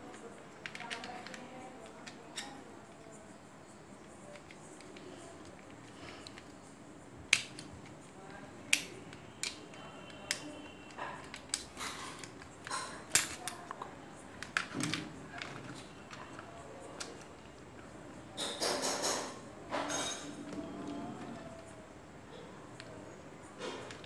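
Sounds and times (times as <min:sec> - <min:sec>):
plastic toy gun mechanism clicking: 0:07.3 - 0:07.7, 0:08.7 - 0:10.5, 0:11.3 - 0:13.6.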